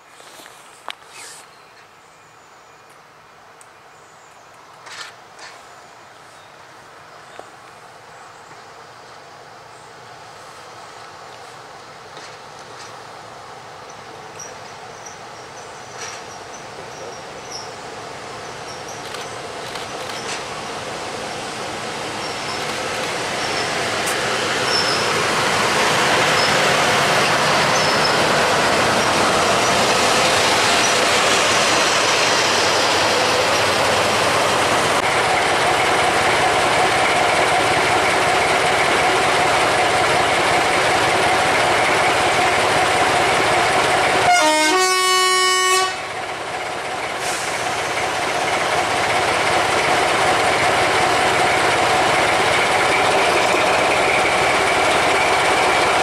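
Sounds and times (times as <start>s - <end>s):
train on rails: 0.0s - 56.0s
diesel locomotive engines: 2.9s - 56.0s
two-tone locomotive horn: 44.2s - 46.1s.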